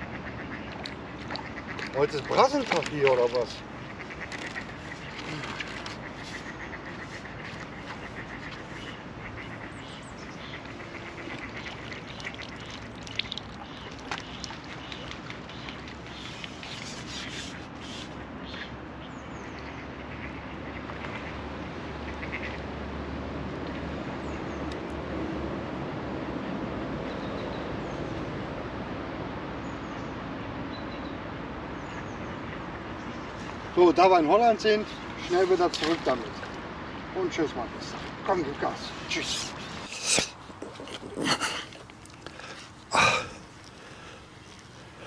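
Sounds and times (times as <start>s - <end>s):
ducks quacking: 0.0s - 12.9s
lakeside background noise: 0.0s - 45.0s.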